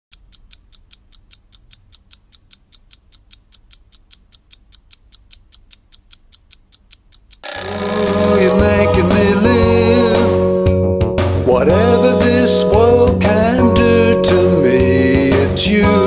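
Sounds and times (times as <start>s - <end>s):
clock ticking quickly: 0.1s - 8.5s.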